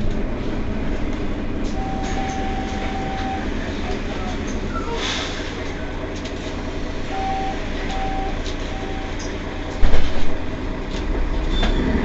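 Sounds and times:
bus engine rumbling: 0:00.0 - 0:12.0
short beeps: 0:01.8 - 0:05.1, 0:07.1 - 0:10.0
heavy low thump: 0:09.8 - 0:10.6.

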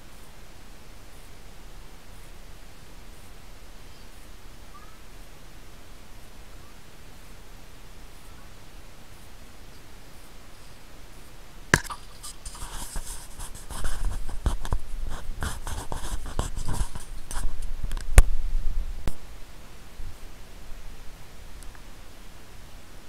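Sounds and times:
camera handling rubbing: 0:11.8 - 0:18.1.

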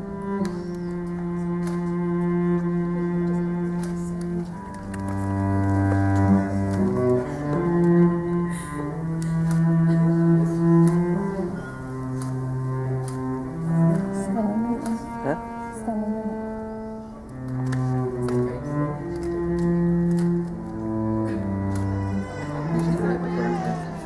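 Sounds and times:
slow bowed string music: 0:00.0 - 0:24.0.

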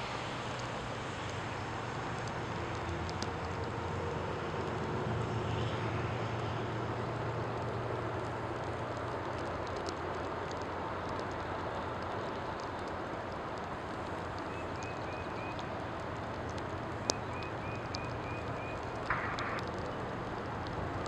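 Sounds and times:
distant low engine rumble: 0:00.0 - 0:21.0
wide background noise: 0:00.0 - 0:21.0.

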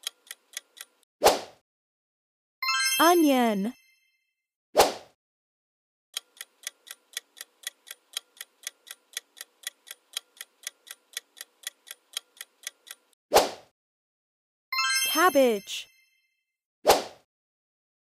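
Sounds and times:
clock ticking: 0:00.0 - 0:01.1, 0:06.2 - 0:13.2.

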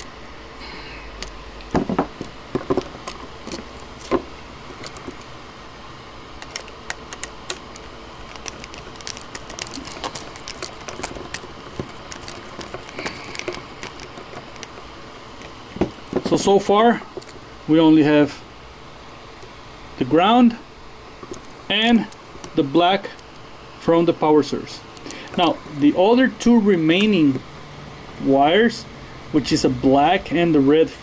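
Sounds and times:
steady low hum: 0:00.0 - 0:31.0
tools clicking and scraping on metal: 0:06.4 - 0:16.4.

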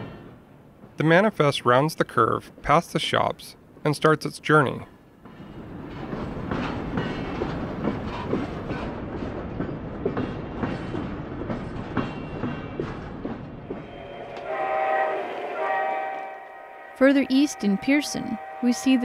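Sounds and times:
wheels clicking over rail joints: 0:05.2 - 0:13.8
steady pitched tone: 0:13.7 - 0:19.0.

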